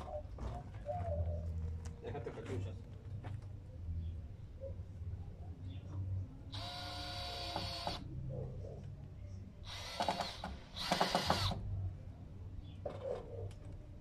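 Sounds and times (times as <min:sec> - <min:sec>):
power drill driving screws: 0:06.6 - 0:08.0, 0:09.7 - 0:11.6.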